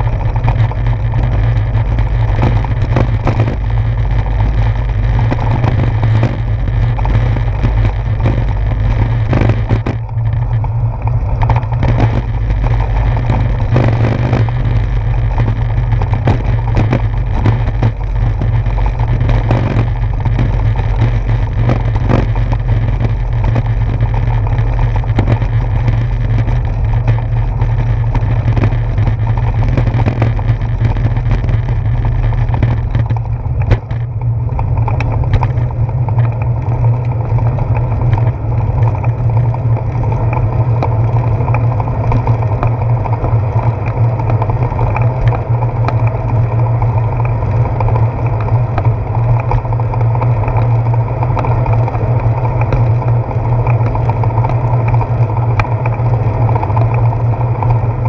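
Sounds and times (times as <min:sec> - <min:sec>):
bicycle road rumble: 0:00.0 - 0:58.0
wind noise: 0:00.0 - 0:58.0
knocks from road bumps: 0:11.4 - 0:34.1.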